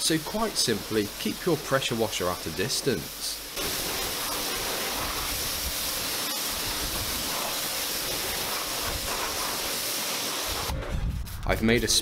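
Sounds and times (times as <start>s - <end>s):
pressure washer spraying water: 0.0s - 10.8s.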